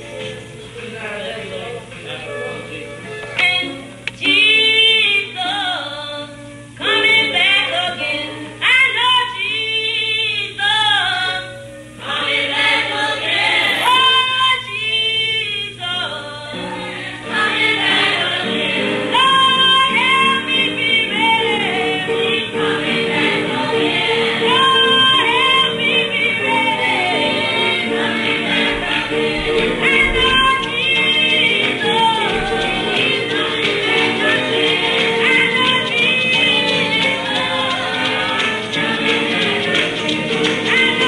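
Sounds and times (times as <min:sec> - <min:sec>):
choir and congregation singing: 0:10.6 - 0:41.0.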